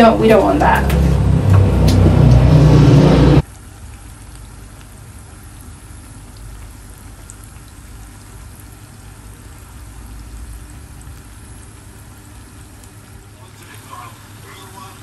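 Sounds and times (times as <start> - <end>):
fritters deep-frying in oil: 3.4 - 15.0.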